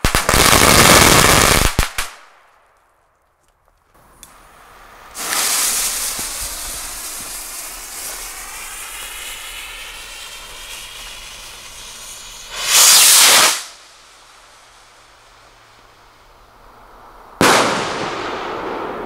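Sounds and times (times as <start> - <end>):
firework rocket hissing: 4.0 - 19.0
loud rush of hiss: 4.0 - 19.0.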